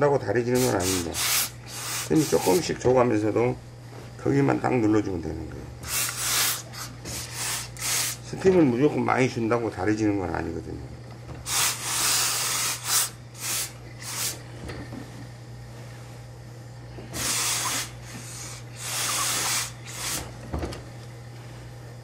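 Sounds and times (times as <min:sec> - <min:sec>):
steady low hum: 0:00.0 - 0:22.0
steam iron hissing: 0:00.5 - 0:02.7, 0:05.8 - 0:08.3, 0:11.4 - 0:14.4, 0:17.0 - 0:20.3.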